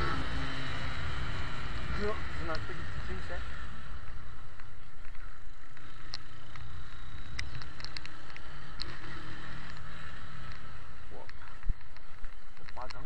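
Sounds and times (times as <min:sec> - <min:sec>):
motorcycle running: 0:00.0 - 0:13.0
faint high ticks: 0:04.0 - 0:13.0.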